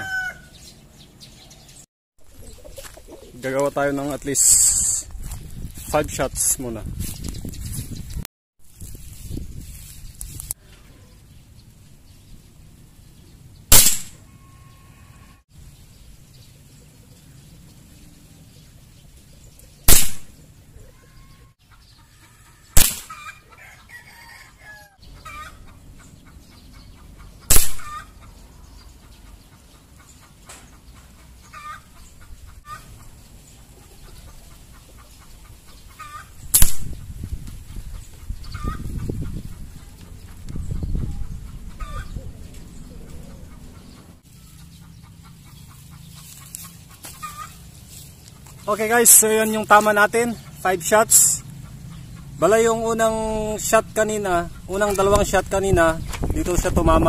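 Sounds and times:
airgun shots cracking: 0:13.7 - 0:14.2, 0:19.9 - 0:20.4, 0:22.8 - 0:23.2, 0:27.5 - 0:27.9, 0:36.5 - 0:36.9.

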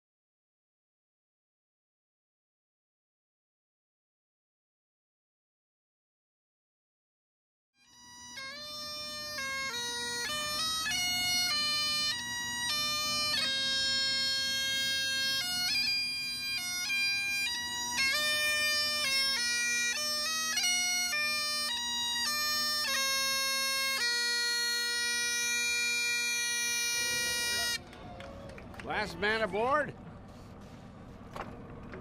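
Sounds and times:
bagpipe chanter melody: 0:07.8 - 0:27.9
bagpipe drone: 0:07.8 - 0:29.9.

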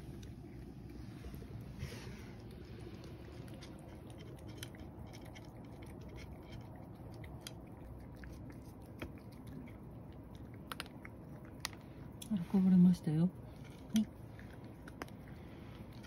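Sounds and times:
cat chewing dry food: 0:00.0 - 0:12.3, 0:13.3 - 0:16.0
low room hum: 0:00.0 - 0:16.0.

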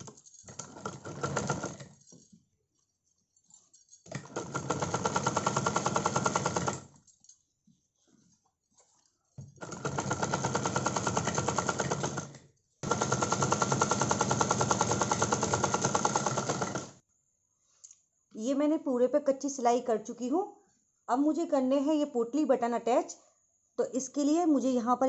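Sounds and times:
sewing machine stitching: 0:00.0 - 0:02.0, 0:04.1 - 0:06.9, 0:09.6 - 0:17.0.

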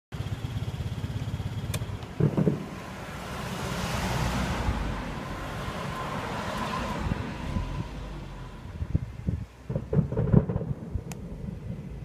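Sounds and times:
distant fireworks thuds: 0:01.8 - 0:03.6, 0:09.6 - 0:12.0.

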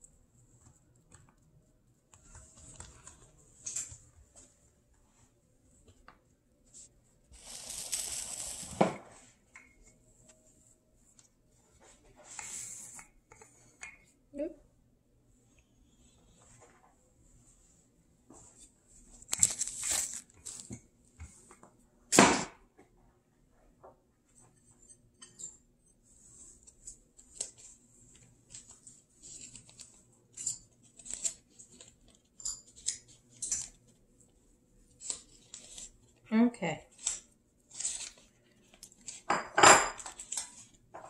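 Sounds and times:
soft crackles of sprinkling: 0:00.0 - 0:14.2, 0:26.0 - 0:39.4, 0:40.0 - 0:41.0.

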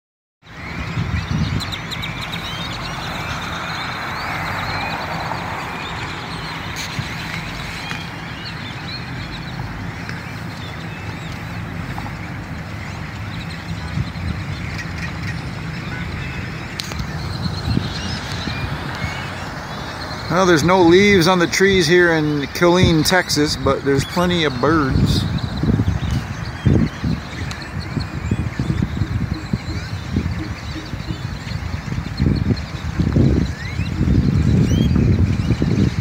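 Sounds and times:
flock of birds chattering: 0:00.4 - 0:36.0
low steady rumble: 0:25.2 - 0:32.9.

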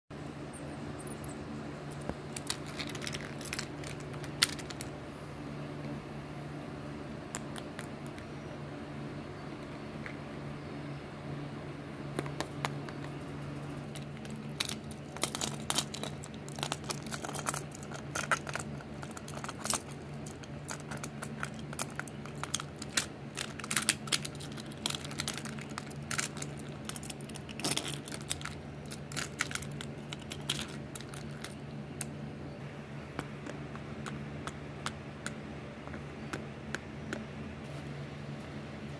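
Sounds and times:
steady low hum: 0:00.1 - 0:38.9
plastic toys clicking and clattering: 0:02.3 - 0:04.9, 0:13.9 - 0:31.6.

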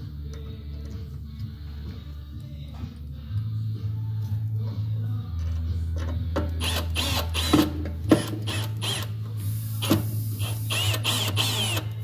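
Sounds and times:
drill motor hum: 0:08.2 - 0:09.1, 0:10.4 - 0:12.0
cordless drill clicks: 0:10.7 - 0:11.9.

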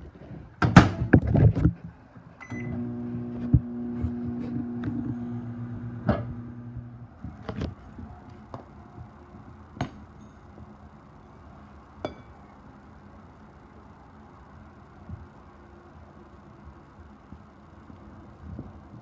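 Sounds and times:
microwave oven humming: 0:02.4 - 0:07.7.

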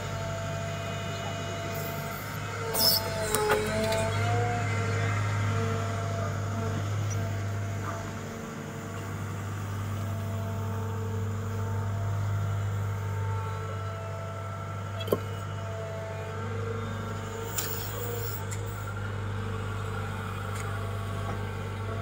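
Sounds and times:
diesel engine running under load: 0:00.0 - 0:22.0
hydraulics whining: 0:01.5 - 0:07.6.

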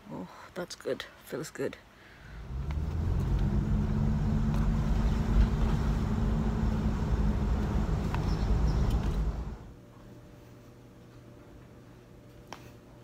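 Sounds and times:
car engine humming: 0:02.4 - 0:09.7.

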